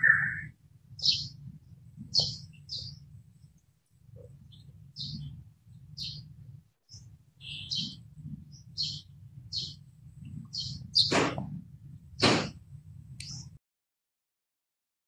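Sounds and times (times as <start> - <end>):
small birds chirping: 0.0 - 11.6, 13.2 - 13.6.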